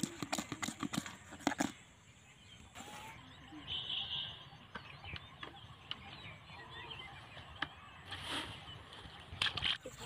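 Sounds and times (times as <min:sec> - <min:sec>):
fish flapping in plastic bucket: 0:00.0 - 0:01.8
outdoor background noise: 0:00.0 - 0:10.0.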